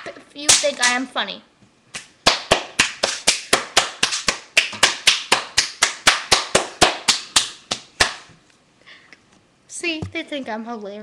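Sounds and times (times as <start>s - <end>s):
person clapping hands: 2.0s - 8.3s.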